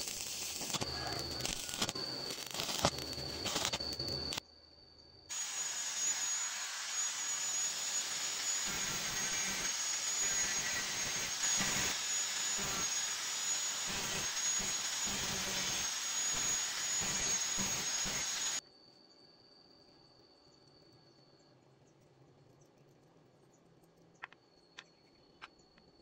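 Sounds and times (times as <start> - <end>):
angle grinder whining: 0.0 - 4.4, 5.3 - 18.6
disc grating on metal: 5.4 - 18.6.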